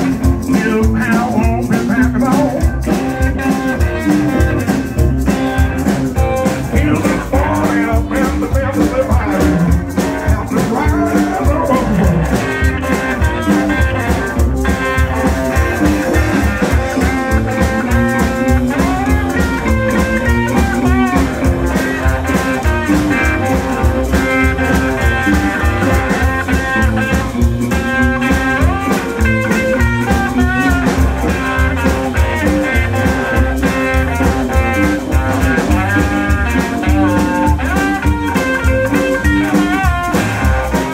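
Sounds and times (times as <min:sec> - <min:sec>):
electric guitars: 0:00.0 - 0:40.9
upright double bass: 0:00.0 - 0:40.9.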